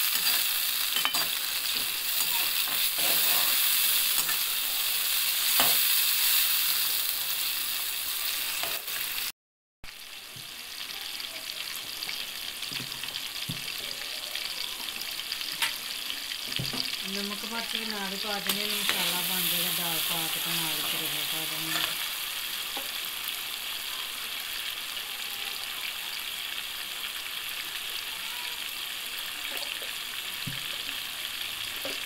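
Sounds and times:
steel spatula scraping pan: 0:00.0 - 0:04.5
vegetables sizzling in hot oil: 0:00.0 - 0:09.3, 0:09.9 - 0:32.0.

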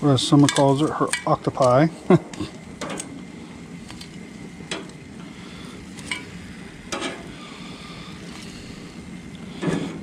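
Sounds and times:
grill hissing and sizzling: 0:00.0 - 0:10.0
metal tongs clacking: 0:00.4 - 0:01.8.

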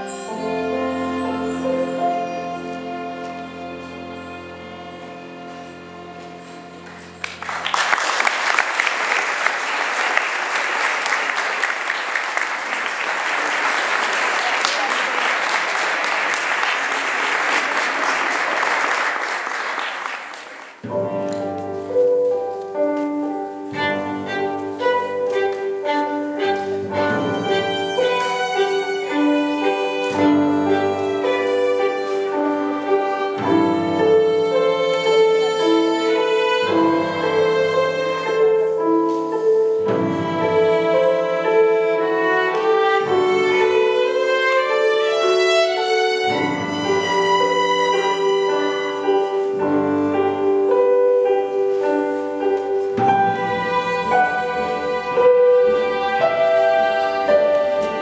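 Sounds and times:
violins playing: 0:00.0 - 0:07.8, 0:20.8 - 0:58.0.

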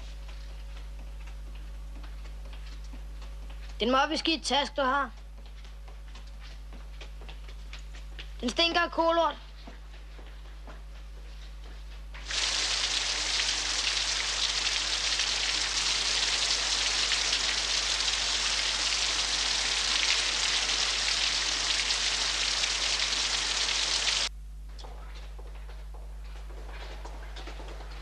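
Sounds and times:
shower water spraying: 0:12.2 - 0:24.3.

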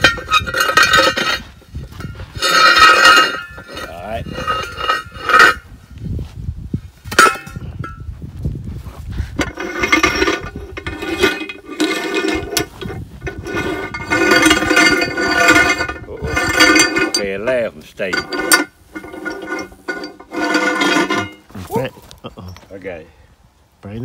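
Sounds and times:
metal-on-metal squealing: 0:00.0 - 0:01.5, 0:02.1 - 0:05.6, 0:09.4 - 0:21.5
disc grinding on shaft: 0:00.0 - 0:05.7, 0:09.4 - 0:21.6.

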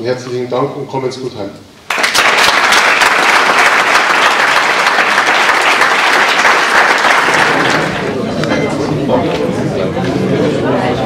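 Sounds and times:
audience applauding: 0:01.9 - 0:08.2.

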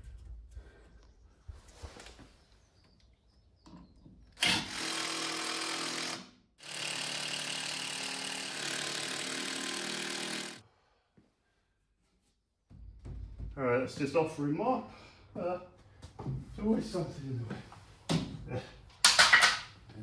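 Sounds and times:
power drill running: 0:04.4 - 0:10.6.

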